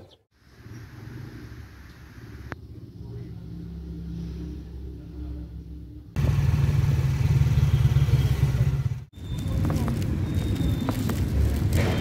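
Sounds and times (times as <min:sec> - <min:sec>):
motorcycle engine running: 0:06.2 - 0:12.0.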